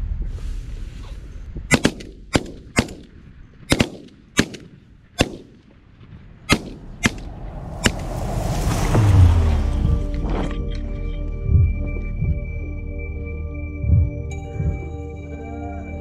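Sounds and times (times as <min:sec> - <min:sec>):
shotgun shots: 0:01.7 - 0:05.6, 0:06.5 - 0:07.3.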